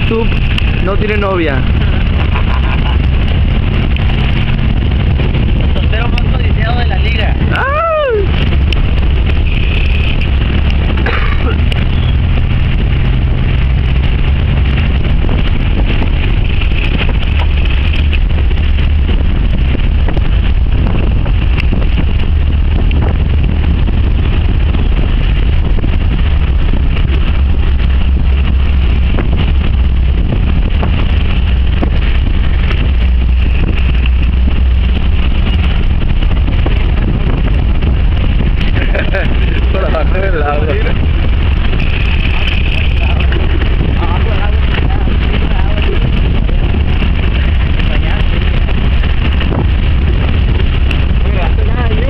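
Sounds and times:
vehicle engine and tyres on dirt: 0:00.0 - 0:52.0
wind buffeting microphone: 0:00.0 - 0:52.0.

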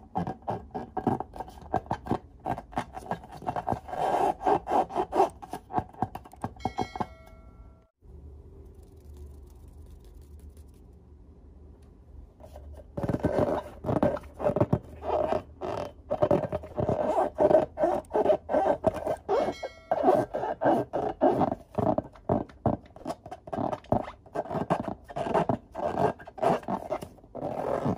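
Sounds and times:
hands rubbing a balloon: 0:12.4 - 0:27.9.

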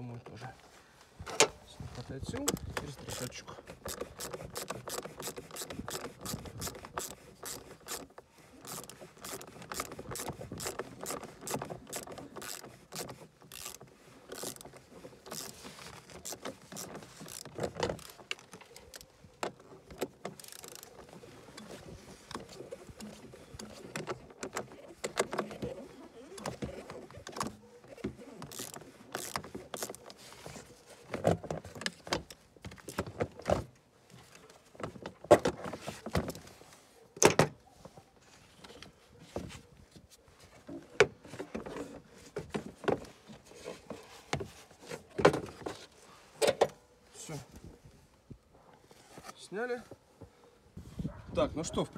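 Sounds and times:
tool rattles: 0:02.2 - 0:33.8
hand ratchet clicking: 0:03.2 - 0:19.1, 0:20.3 - 0:21.0, 0:28.4 - 0:30.1.

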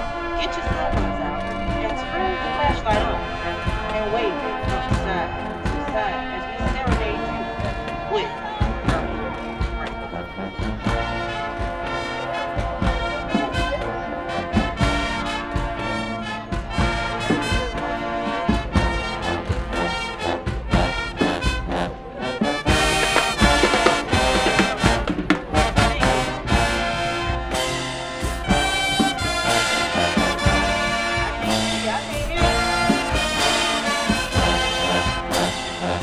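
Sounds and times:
marching band brass: 0:00.0 - 0:36.0
drum hits: 0:22.6 - 0:35.9.

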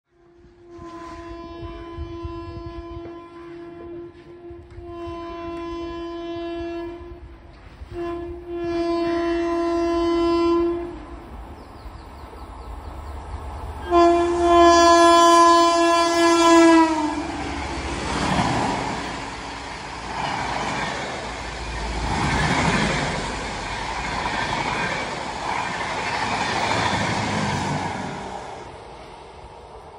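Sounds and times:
locomotive horn blasts: 0:00.1 - 0:11.2, 0:13.8 - 0:17.8
train wheels clattering on rails: 0:17.4 - 0:28.4.

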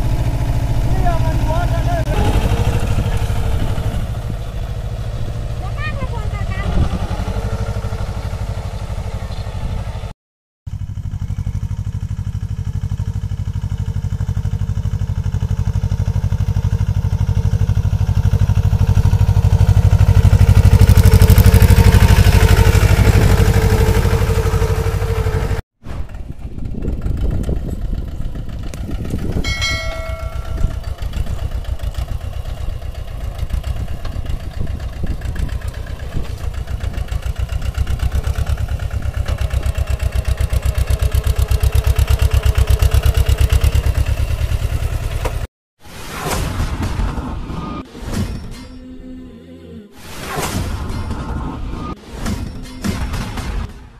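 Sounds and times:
tractor diesel engine under load: 0:00.0 - 0:10.1, 0:10.7 - 0:45.5
short ringing tone: 0:29.4 - 0:31.2.

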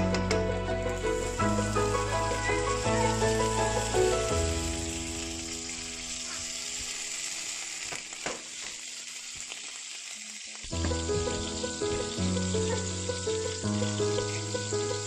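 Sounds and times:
background music: 0:00.0 - 0:06.2, 0:10.8 - 0:15.0
butter sizzling in a frying pan: 0:00.8 - 0:15.0.

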